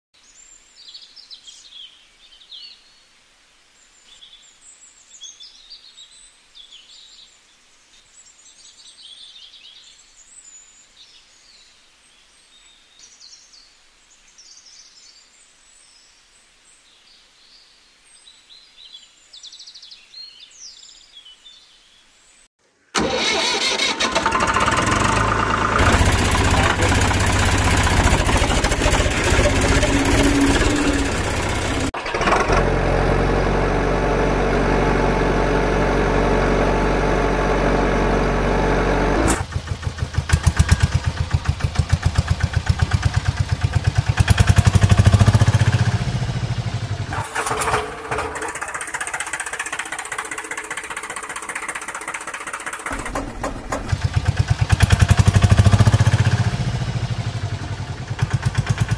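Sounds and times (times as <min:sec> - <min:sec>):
motor vehicle engine: 0:23.0 - 0:58.9.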